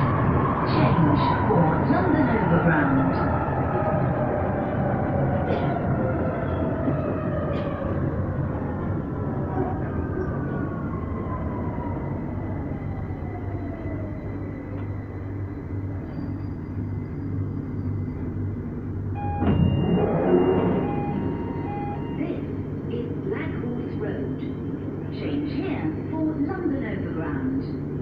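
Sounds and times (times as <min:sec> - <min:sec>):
steady train rumble: 0:00.0 - 0:28.0
loud burst of doors opening: 0:19.2 - 0:22.2
train motors whining down: 0:19.2 - 0:22.2
repeating door beep: 0:19.2 - 0:22.3.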